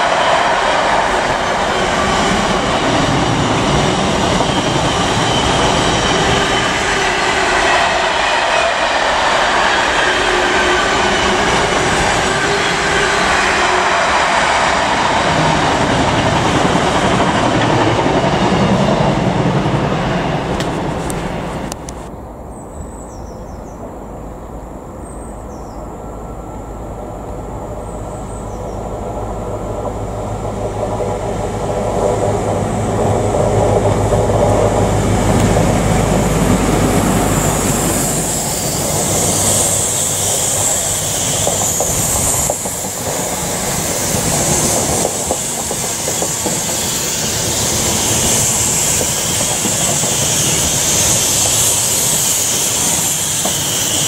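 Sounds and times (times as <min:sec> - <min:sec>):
train wheels on rails: 0:00.0 - 0:22.1, 0:25.8 - 0:54.0
diesel train engine droning: 0:00.0 - 0:23.1, 0:23.8 - 0:54.0.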